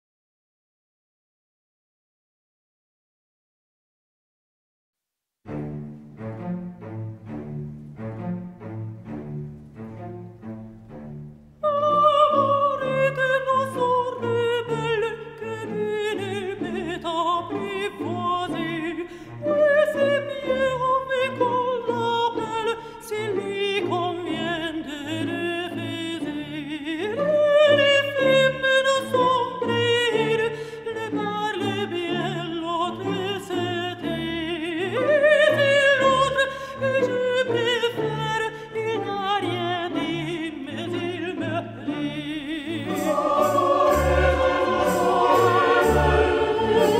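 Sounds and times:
slow background music: 0:42.7 - 0:46.9.

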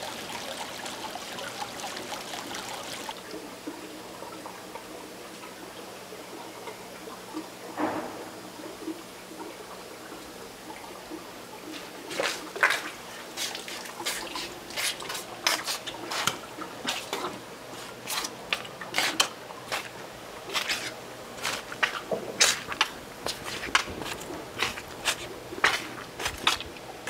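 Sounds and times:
dripping water: 0:00.0 - 0:27.0.

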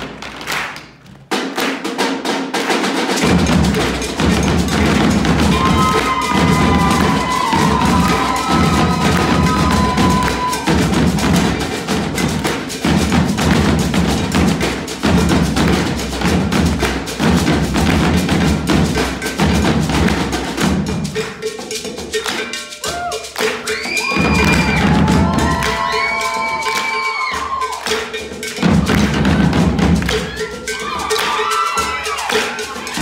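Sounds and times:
drums struck with sticks: 0:00.0 - 0:33.0
deep bass drum beats: 0:03.2 - 0:21.2, 0:24.1 - 0:26.6.

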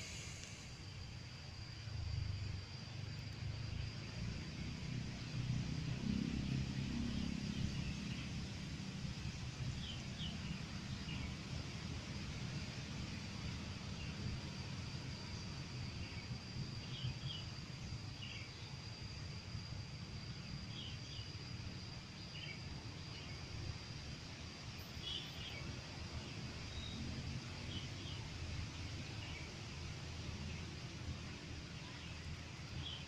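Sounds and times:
thin high whine: 0:00.0 - 0:29.8
steady low rumble: 0:00.0 - 0:33.0.

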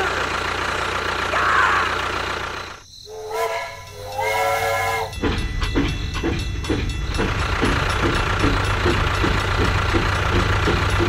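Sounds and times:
toy train chugging ticks: 0:00.0 - 0:11.0
toy train whistle: 0:03.1 - 0:05.2.

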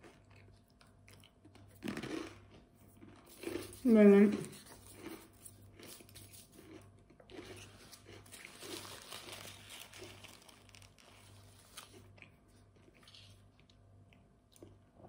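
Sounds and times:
paper napkin rustling: 0:08.4 - 0:11.9.

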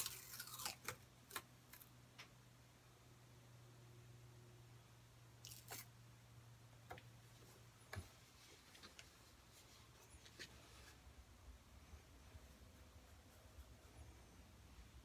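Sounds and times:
hands rustling tape: 0:00.0 - 0:01.9
low steady hum: 0:00.0 - 0:15.0.

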